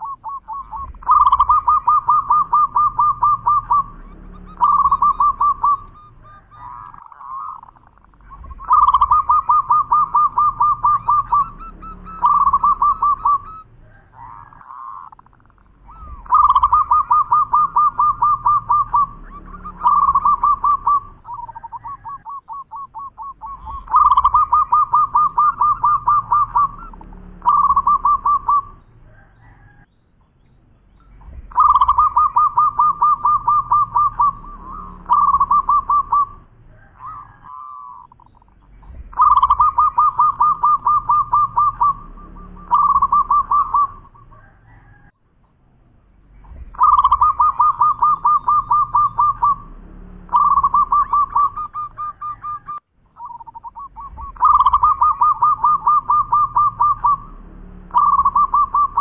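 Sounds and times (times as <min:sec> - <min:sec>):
dove cooing: 0:00.0 - 0:29.9, 0:30.9 - 0:45.2, 0:46.3 - 0:59.0.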